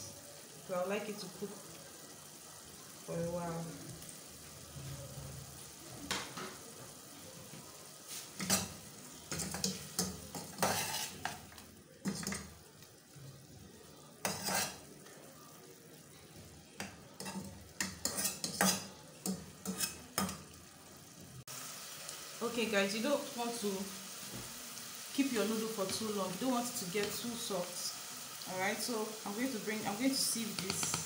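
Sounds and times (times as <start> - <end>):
low sizzle: 0.0 - 31.0
spoon scraping and clinking pot: 9.3 - 11.4, 14.2 - 14.8, 17.2 - 20.4.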